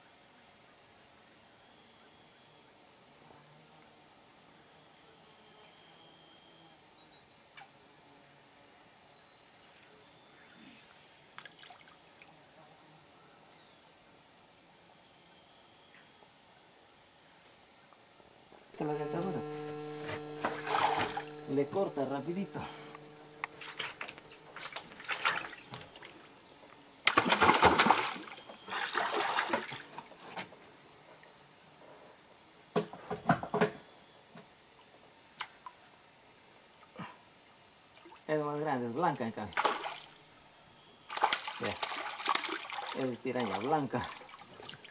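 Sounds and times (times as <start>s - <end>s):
insects buzzing: 0.0s - 44.9s
water splashing against a boat: 18.9s - 26.2s, 27.1s - 30.4s, 41.1s - 44.9s.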